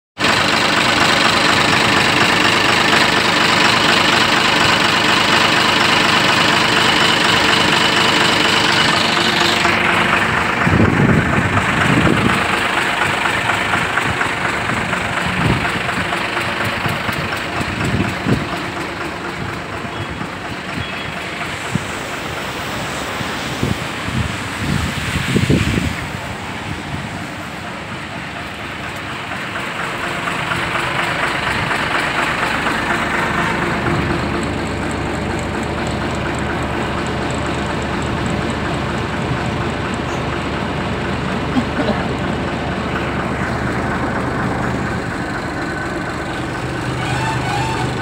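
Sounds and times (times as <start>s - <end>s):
diesel truck engine idling: 0.2s - 48.0s
wind buffeting microphone: 9.7s - 18.8s, 23.2s - 27.5s.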